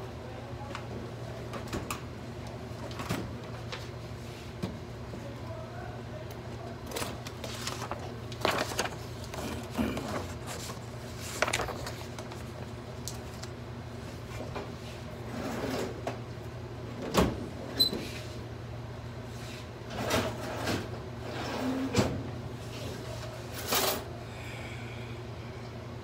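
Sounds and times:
paper and file folders rustling: 6.6 - 13.6
steady low hum: 22.2 - 26.0.

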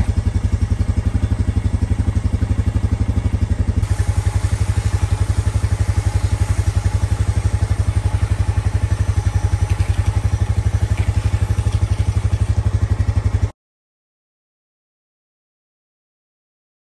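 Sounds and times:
engine idling chugging: 0.0 - 13.5.

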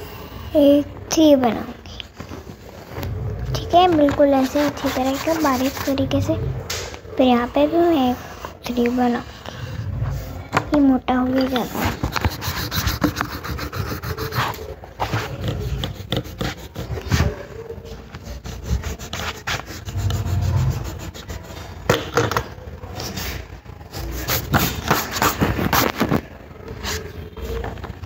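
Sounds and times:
rubbing and scratching on paper: 3.5 - 6.4, 11.4 - 21.8, 23.0 - 27.2.

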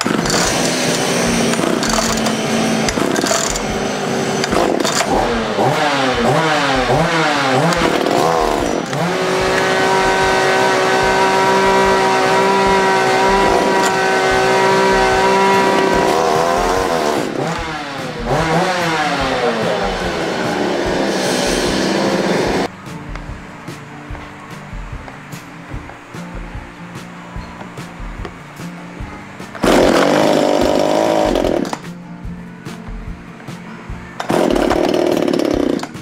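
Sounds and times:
chainsaw engine revving: 0.0 - 22.7, 29.6 - 31.8, 34.2 - 36.0.

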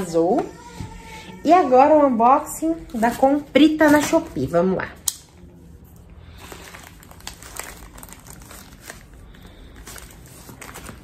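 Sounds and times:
packaging crinkling and tearing: 6.3 - 11.0.

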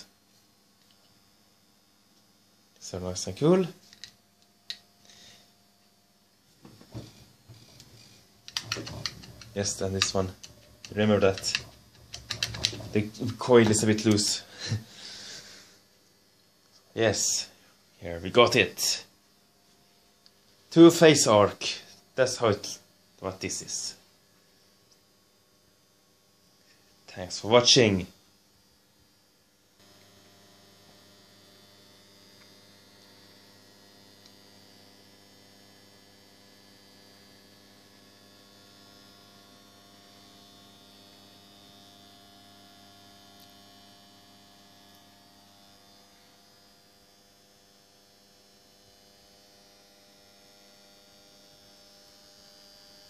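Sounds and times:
electrical mains hum: 0.0 - 53.0.

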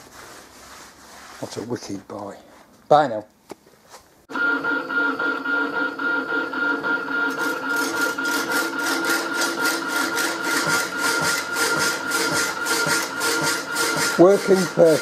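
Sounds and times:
motor hum: 4.3 - 15.0
hacksaw blade rasping through steel: 7.8 - 15.0.

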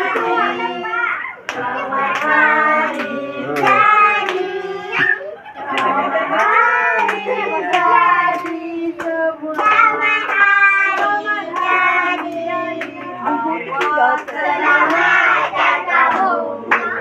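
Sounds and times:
group singing birthday song: 0.0 - 17.0
hand claps: 1.4 - 4.4, 5.7 - 13.1, 13.8 - 17.0.

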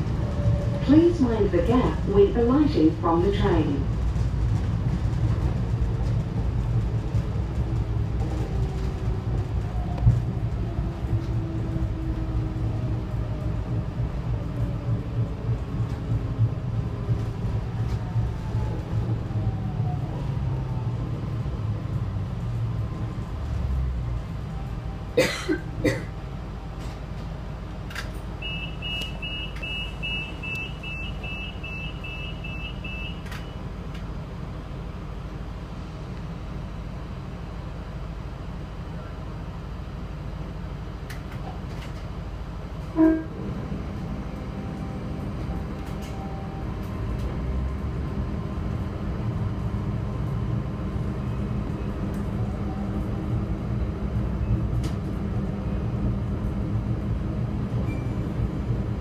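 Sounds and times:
train rumbling: 0.0 - 59.0
person coughing: 25.2 - 26.1
electronic warning beeps: 28.4 - 33.6.

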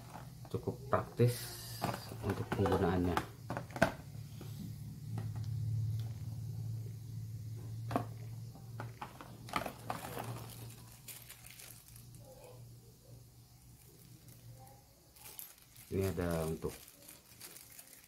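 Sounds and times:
steady low hum: 0.0 - 15.9
plastic packaging clicks and rustles: 1.8 - 4.1, 7.9 - 12.6, 13.7 - 18.0
plastic bag crinkling: 8.8 - 12.6, 13.7 - 18.0.

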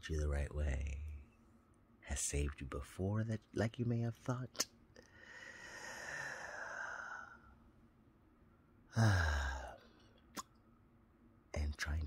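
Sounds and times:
man sighing: 8.9 - 9.8.

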